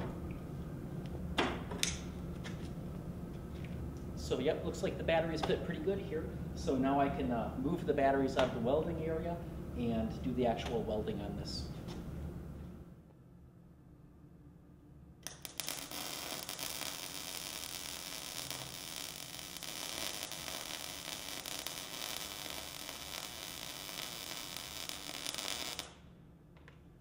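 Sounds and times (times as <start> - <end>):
welding arc crackling and hissing: 15.2 - 26.0.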